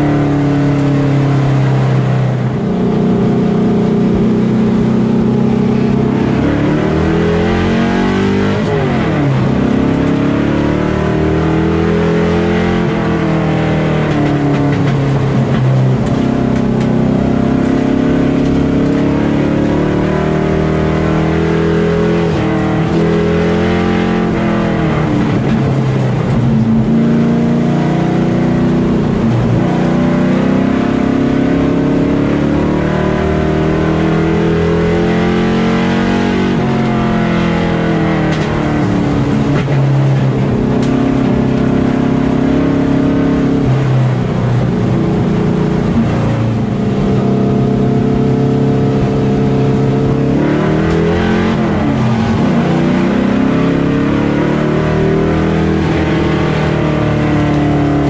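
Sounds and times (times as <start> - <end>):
race car engine: 0.0 - 58.0.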